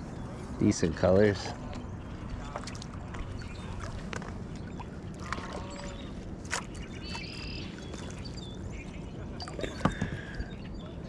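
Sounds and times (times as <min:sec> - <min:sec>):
water splashing and sloshing: 0:00.0 - 0:10.5.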